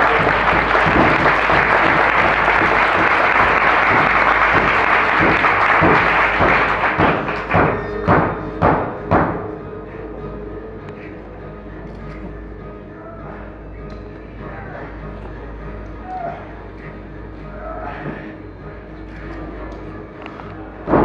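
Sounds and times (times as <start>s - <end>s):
audience applause: 0.0s - 8.2s
music playing: 0.0s - 21.0s
sharp knocks: 0.1s - 9.4s.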